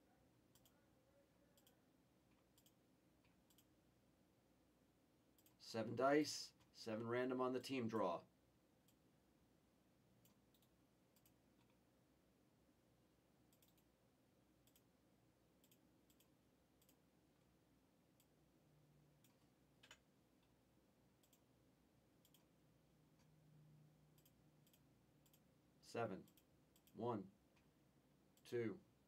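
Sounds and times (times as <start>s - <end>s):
computer mouse clicks: 0.5s - 0.8s, 1.6s - 3.7s, 5.4s - 5.6s, 10.2s - 11.8s, 13.5s - 13.9s, 14.6s - 14.9s, 15.6s - 17.0s, 19.2s - 20.1s, 21.2s - 21.5s, 22.2s - 22.6s, 24.1s - 25.5s, 26.2s - 27.0s.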